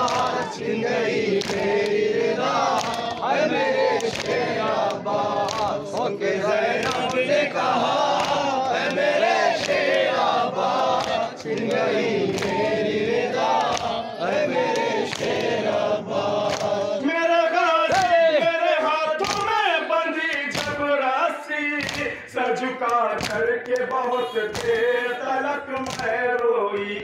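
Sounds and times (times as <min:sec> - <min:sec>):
hands slapping chests: 0:00.0 - 0:00.4, 0:01.3 - 0:07.2, 0:07.9 - 0:12.6, 0:13.4 - 0:14.0, 0:14.7 - 0:15.7, 0:16.4 - 0:16.9, 0:17.9 - 0:18.2, 0:19.2 - 0:19.6, 0:20.3 - 0:20.8, 0:21.8 - 0:22.2, 0:22.8 - 0:24.8, 0:25.7 - 0:26.4
men chanting in chorus: 0:00.0 - 0:27.0.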